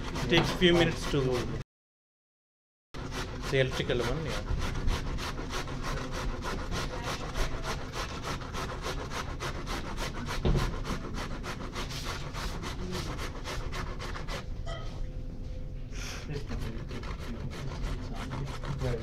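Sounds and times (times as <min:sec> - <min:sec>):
food grated on a grater: 0:00.0 - 0:01.6, 0:03.0 - 0:14.4, 0:16.4 - 0:19.0
loud knock: 0:10.4 - 0:10.8.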